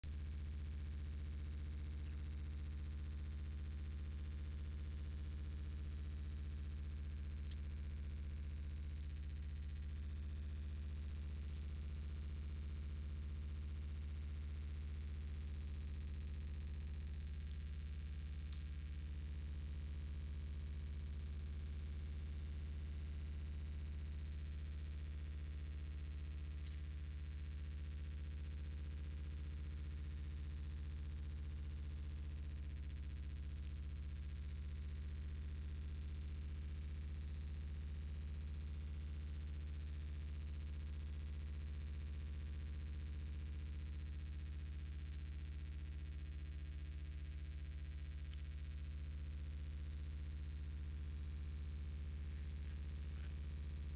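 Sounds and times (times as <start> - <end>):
low electrical hum: 0.0 - 53.9
faint sharp clicks: 7.4 - 7.7, 45.0 - 48.9.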